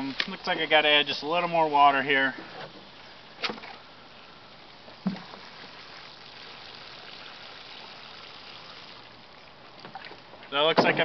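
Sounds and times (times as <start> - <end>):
dull thump: 5.0 - 5.4, 9.8 - 11.0.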